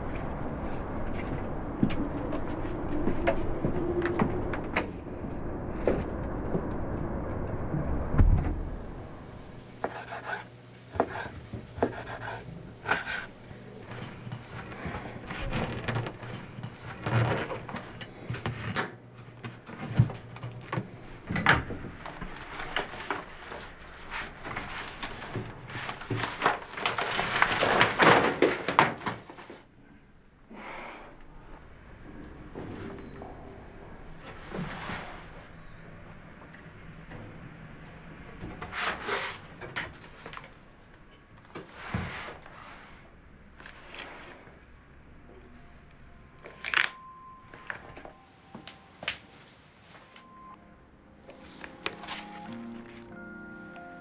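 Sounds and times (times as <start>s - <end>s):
low steady rumble: 0.0s - 10.8s
knife sawing through bread: 9.8s - 13.3s
newspaper rustling: 21.9s - 29.6s, 51.2s - 54.0s.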